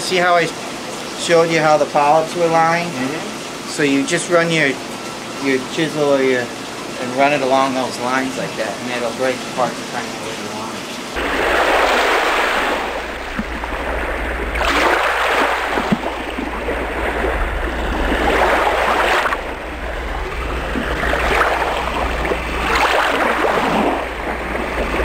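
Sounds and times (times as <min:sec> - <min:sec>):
rushing water surges: 0:00.0 - 0:25.0
low hum: 0:11.1 - 0:25.0.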